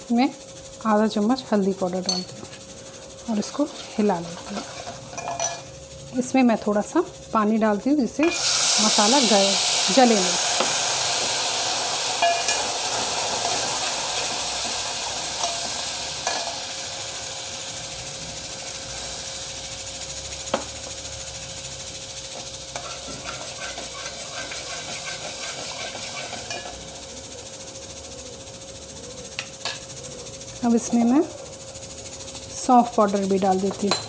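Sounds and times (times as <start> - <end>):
spices sizzling in hot oil: 0.0 - 34.0
metal spoon clinking on pot: 2.0 - 2.4, 4.4 - 5.7, 12.2 - 12.6, 33.7 - 34.0.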